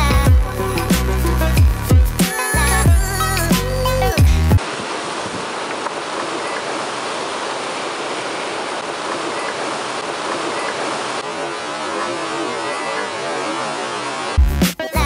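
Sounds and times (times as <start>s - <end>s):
ocean surf breaking on rocks: 4.6s - 14.4s.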